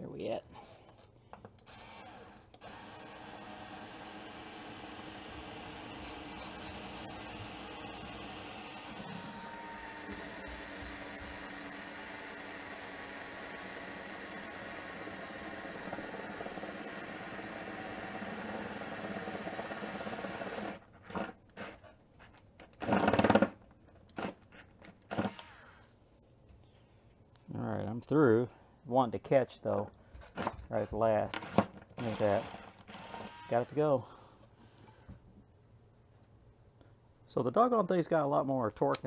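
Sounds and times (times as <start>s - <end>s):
cordless drill whining: 0.6s - 20.9s, 25.1s - 25.9s, 31.4s - 33.8s
drill bit catching: 1.6s - 20.8s.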